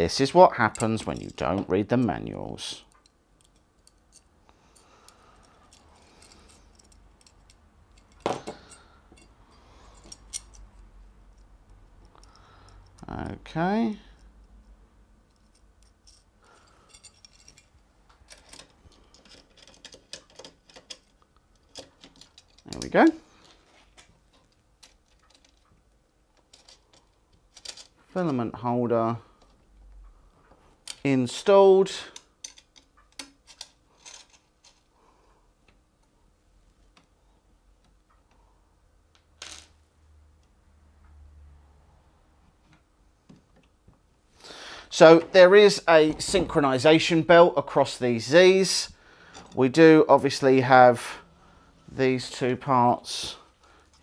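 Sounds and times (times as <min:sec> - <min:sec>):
small hardware clicking and clinking: 0:00.6 - 0:13.1, 0:14.1 - 0:23.1, 0:26.3 - 0:28.0, 0:32.0 - 0:34.9.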